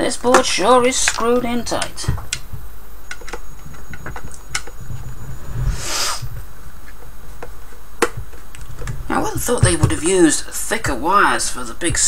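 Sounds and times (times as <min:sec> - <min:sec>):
short scrape: 0:05.3 - 0:06.3.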